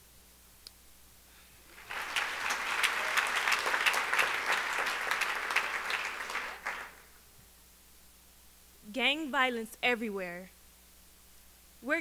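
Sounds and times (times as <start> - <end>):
audience clapping: 1.7 - 7.1.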